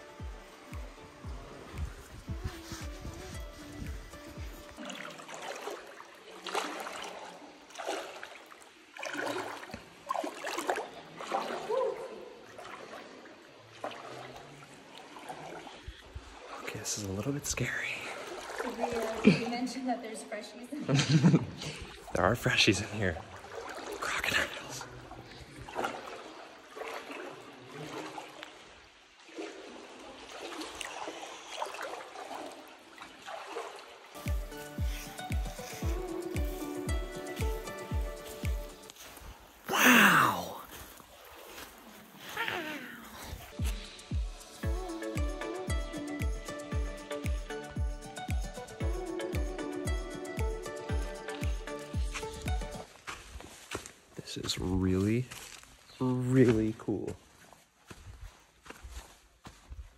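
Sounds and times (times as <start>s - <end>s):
faint water trickle: 0.0s - 46.8s
water splashing and sloshing: 0.0s - 59.9s.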